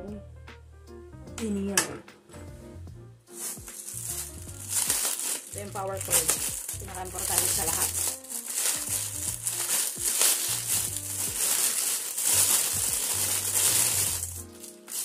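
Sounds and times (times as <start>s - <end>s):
plastic bag crinkling: 3.4s - 15.0s.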